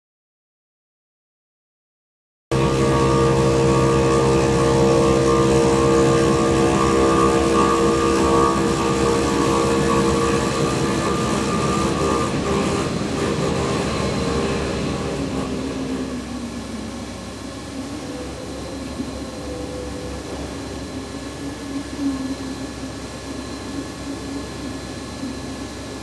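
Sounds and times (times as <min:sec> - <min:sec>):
machine hum with held tones: 0:02.5 - 0:26.0.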